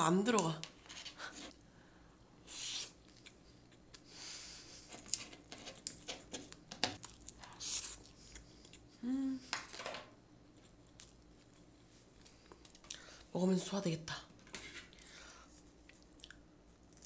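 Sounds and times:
person humming mm: 8.9 - 9.5.

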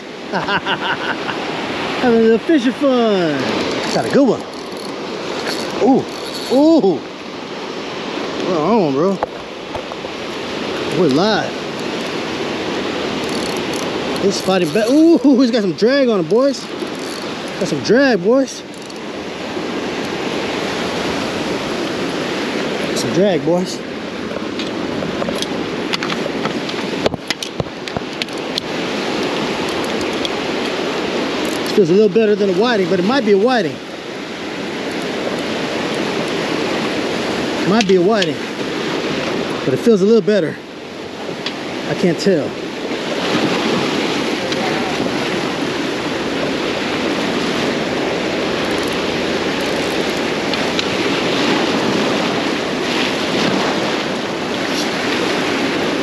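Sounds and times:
surf washing against rocks: 0.0 - 56.0
wind on microphone: 40.9 - 56.0.

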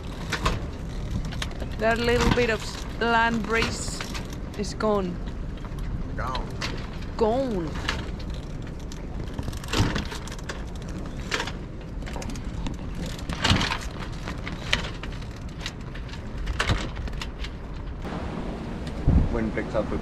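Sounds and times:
sails flapping and cracking: 0.0 - 20.0
wind rushing: 18.0 - 20.0.

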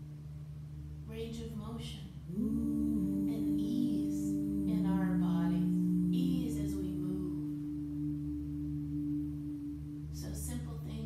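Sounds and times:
woman's voice: 1.1 - 7.6, 10.2 - 11.0
ambient drone music: 2.1 - 11.0.

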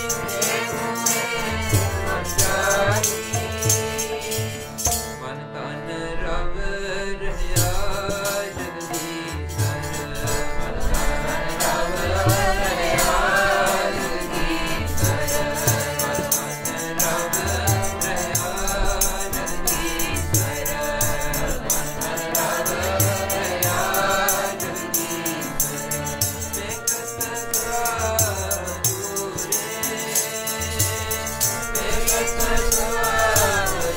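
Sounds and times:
group singing: 0.0 - 5.0, 10.8 - 33.9
jingling percussion: 0.0 - 5.2, 7.6 - 33.9
harmonium: 0.0 - 33.9.

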